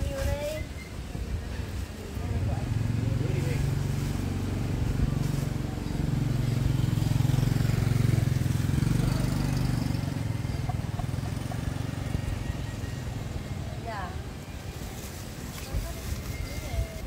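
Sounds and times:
small engine running: 2.5 - 13.6.

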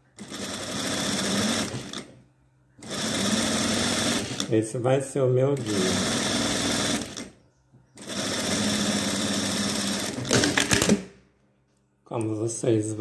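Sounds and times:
industrial sewing machine stitching: 0.1 - 2.2, 2.8 - 4.5, 5.4 - 7.3, 8.0 - 11.0.

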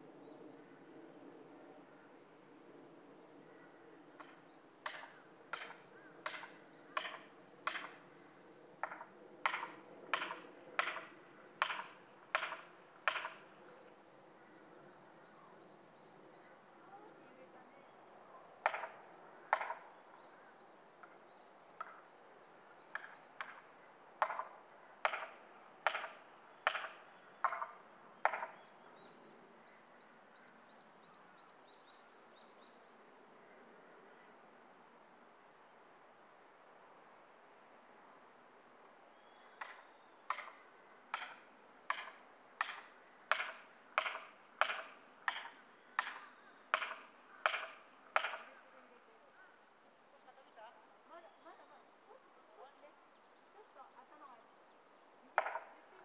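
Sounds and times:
hammer striking steel wedge: 46.8 - 48.4.

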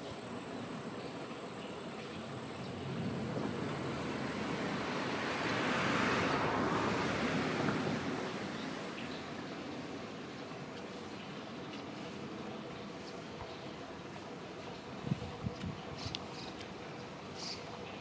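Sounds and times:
vehicle passing by: 2.6 - 9.0.

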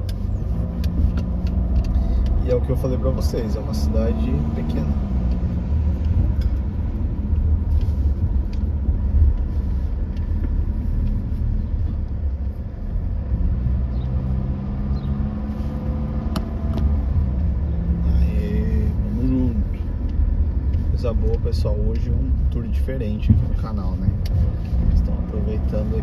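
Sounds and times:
car engine and road rumble: 0.0 - 26.0
engine hum: 0.0 - 26.0.

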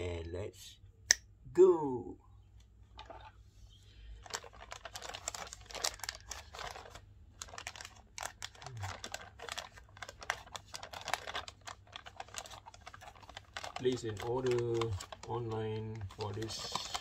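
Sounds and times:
plastic bag crinkling: 2.9 - 17.0.

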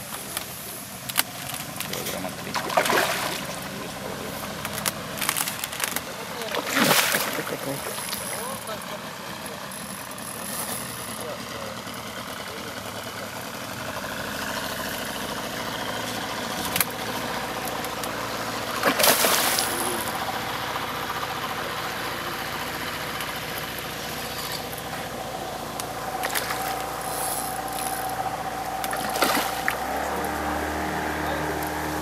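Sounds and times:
low hum: 0.0 - 32.0
fish splashing at surface: 1.3 - 8.5, 18.7 - 20.3, 26.0 - 30.0.

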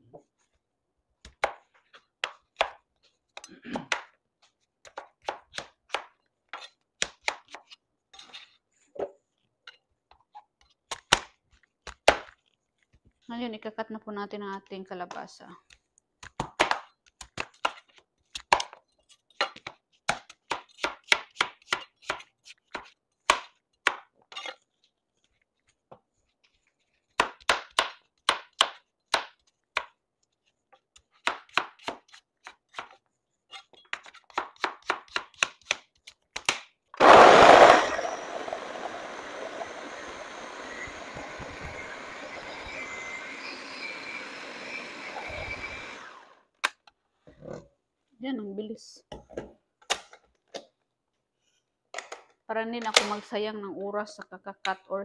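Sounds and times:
blender running: 37.0 - 46.4.

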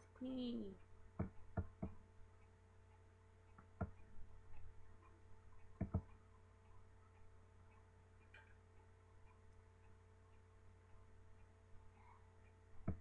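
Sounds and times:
faint steady hum: 0.0 - 13.0
computer mouse clicking: 1.2 - 13.0.

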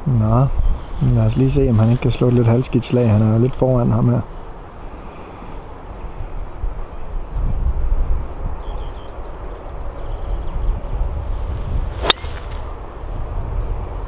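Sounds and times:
golf club hitting ball: 12.0 - 12.7.

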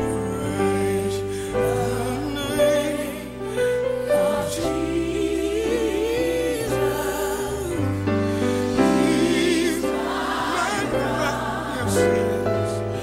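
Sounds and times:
keyboard sustained chords: 0.0 - 13.0
person singing: 0.0 - 13.0.

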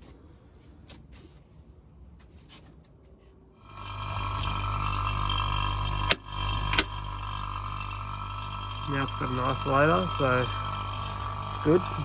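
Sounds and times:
vacuum pump humming: 3.6 - 12.0.

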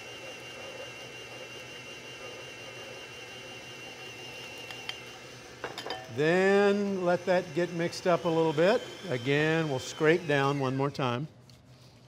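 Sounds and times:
stand mixer motor whining: 0.0 - 11.0.

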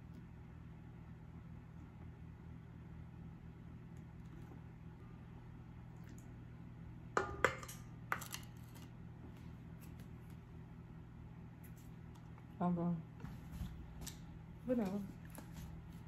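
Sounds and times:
low steady hum: 0.0 - 16.0
kitchenware clinking: 7.2 - 8.4.

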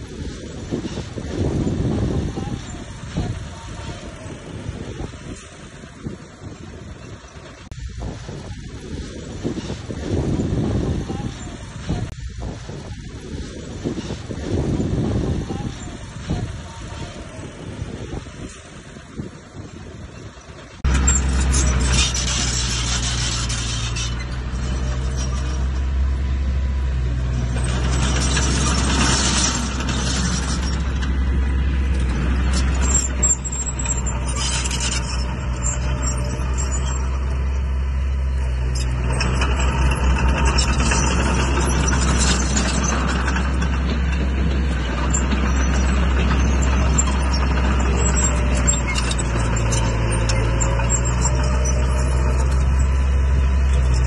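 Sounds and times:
diesel machine engine humming: 0.0 - 54.0
rattling and scraping: 20.6 - 54.0.

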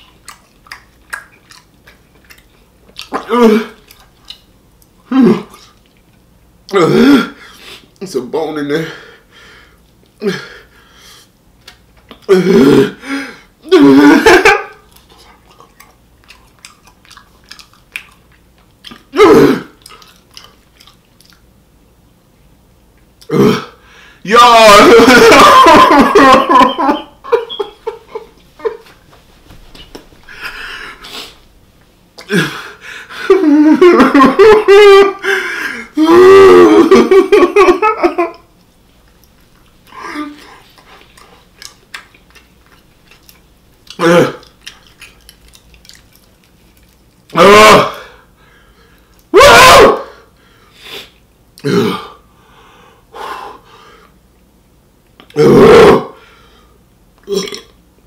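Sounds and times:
man moaning and whimpering: 3.3 - 3.8, 6.7 - 7.4, 12.3 - 13.0, 19.2 - 19.7, 35.0 - 37.0, 44.0 - 44.4, 47.4 - 48.1
man clearing throat: 6.7 - 7.4, 19.2 - 19.8, 51.6 - 52.2
noisy breath: 8.8 - 11.4, 13.0 - 13.5, 23.8 - 24.3, 30.2 - 31.5, 32.3 - 33.3, 35.2 - 36.0, 48.0 - 49.2, 50.0 - 51.2, 52.2 - 54.2, 56.2 - 56.8
man breathing: 23.8 - 24.2, 30.2 - 31.5, 32.2 - 33.4, 35.2 - 36.0, 52.2 - 54.2
mouth sounds: 43.8 - 45.2.

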